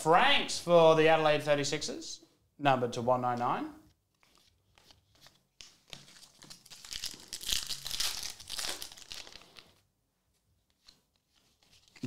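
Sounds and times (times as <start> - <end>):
plastic packaging crinkling: 5.9 - 9.8.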